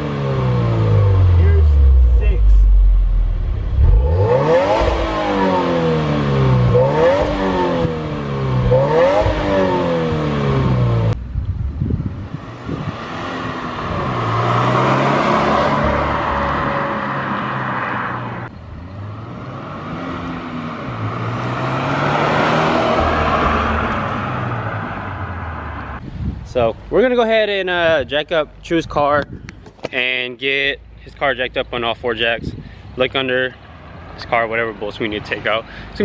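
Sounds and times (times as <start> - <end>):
car engine revving: 0.0 - 11.2, 12.4 - 26.0.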